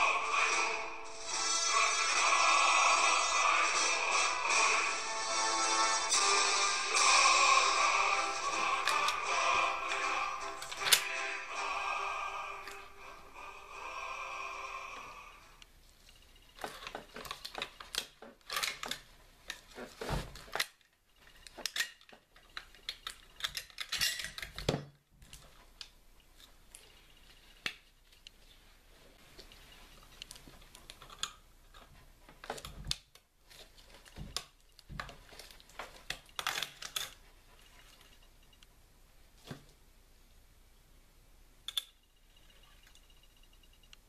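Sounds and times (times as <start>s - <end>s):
rifle parts clicking and rattling: 16.1s - 19.8s, 20.4s - 28.4s, 29.4s - 38.2s.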